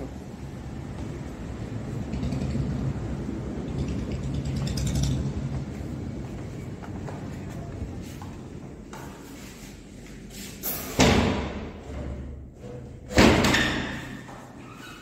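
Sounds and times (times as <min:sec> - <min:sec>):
loud thuds echoing in empty room: 0:10.9 - 0:12.4, 0:13.0 - 0:14.4.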